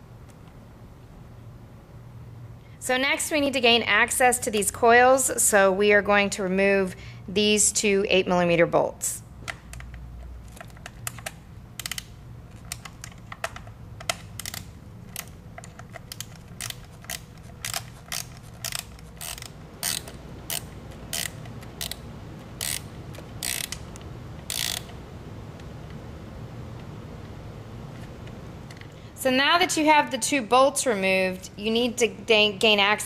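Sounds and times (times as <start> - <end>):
ratchet wrench clicking: 11.1 - 12.1, 14.0 - 23.8, 24.4 - 25.0
ratcheting rasps: 14.0 - 25.0.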